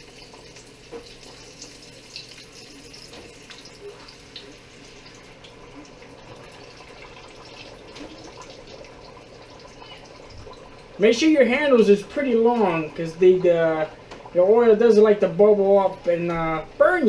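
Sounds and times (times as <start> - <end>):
tortilla sizzling in hot oil: 0.0 - 10.7.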